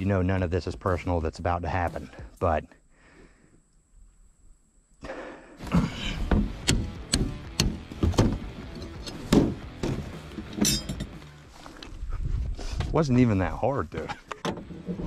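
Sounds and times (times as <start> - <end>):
knocks and clunks of crank and hatch: 6.2 - 10.8.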